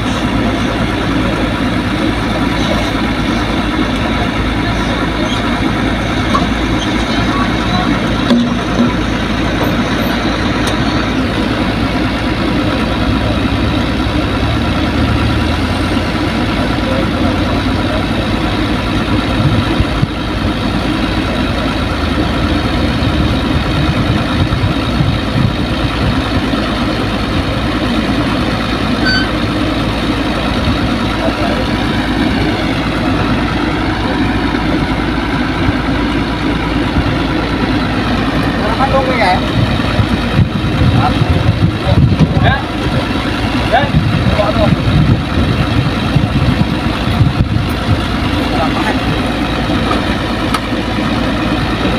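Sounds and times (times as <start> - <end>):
heavy diesel engine running: 0.0 - 51.9.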